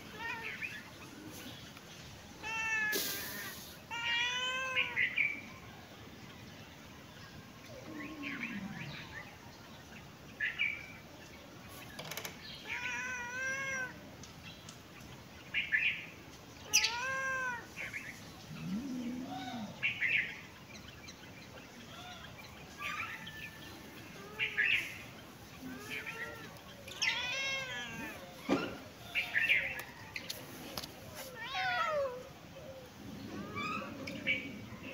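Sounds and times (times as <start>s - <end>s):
cat meowing: 16.7s - 17.7s, 25.6s - 28.8s.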